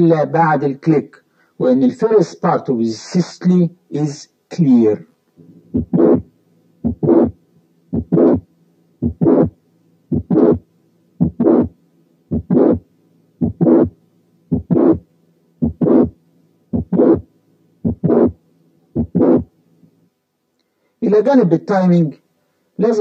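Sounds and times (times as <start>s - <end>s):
faint steady hum: 0.0s - 23.0s
heartbeat with click and murmur: 5.4s - 6.2s, 6.8s - 7.3s, 7.9s - 8.4s, 9.0s - 9.5s, 10.1s - 10.6s, 11.2s - 11.7s, 12.3s - 12.8s, 13.4s - 13.9s, 14.5s - 15.0s, 15.6s - 16.1s, 16.7s - 17.2s, 17.8s - 18.4s, 19.0s - 19.4s.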